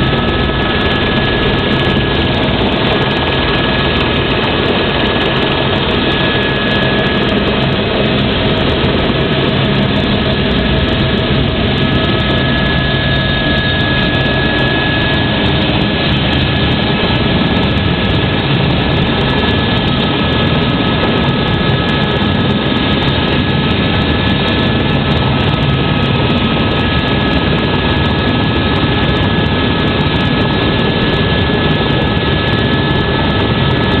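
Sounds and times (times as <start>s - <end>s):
helicopter engine and rotor: 0.0s - 34.0s.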